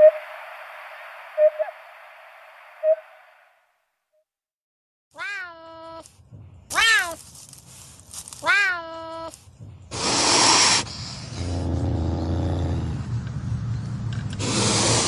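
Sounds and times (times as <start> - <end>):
harsh hiss-like rasp: 9.9 - 11.6, 14.3 - 15.0.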